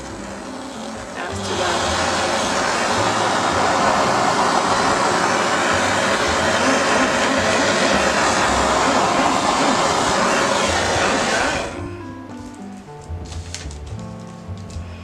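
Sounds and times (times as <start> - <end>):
blowtorch rushing hiss: 0.0 - 11.9.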